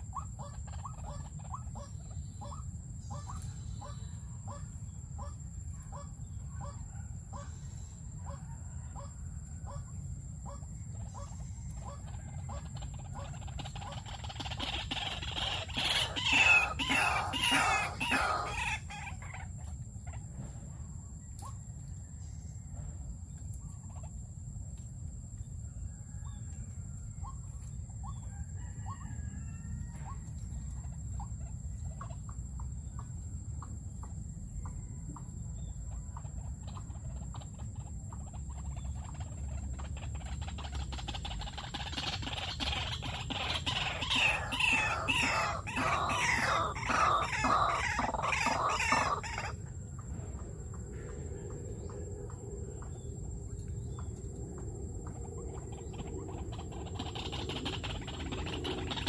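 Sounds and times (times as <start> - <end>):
waterhens clucking: 0.0 - 6.8, 8.1 - 20.4, 35.9 - 53.2, 54.0 - 59.0
harsh rapid bird calls: 10.5 - 19.4, 36.3 - 49.6, 55.1 - 59.0.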